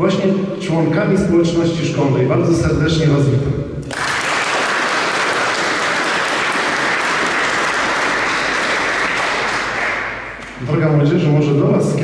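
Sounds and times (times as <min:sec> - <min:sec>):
audience applauding: 0:03.8 - 0:10.6.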